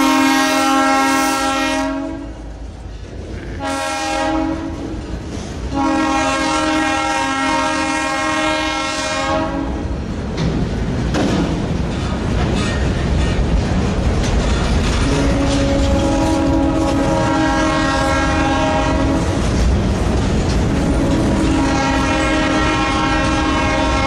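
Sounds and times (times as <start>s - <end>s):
locomotive air horn blasts: 0.0s - 2.5s, 3.6s - 5.0s, 5.7s - 9.8s, 15.0s - 19.4s, 20.8s - 24.0s.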